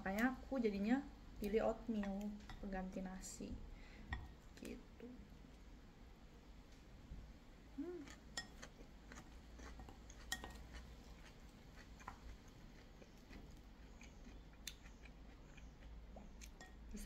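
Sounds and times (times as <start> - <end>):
quiet chewing: 7.8 - 17.0.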